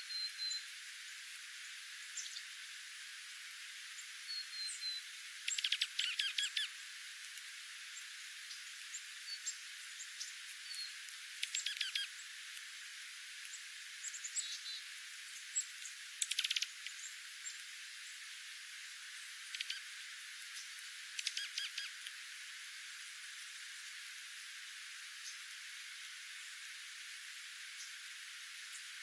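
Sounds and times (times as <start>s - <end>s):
faint hiss: 0.0s - 29.0s
bird twittering: 4.3s - 6.7s, 10.7s - 12.1s, 16.2s - 16.8s, 19.5s - 19.8s, 21.2s - 22.0s
bird chip calls: 4.3s - 6.8s, 10.6s - 12.2s, 15.6s - 17.6s, 19.5s - 19.9s, 21.2s - 22.1s.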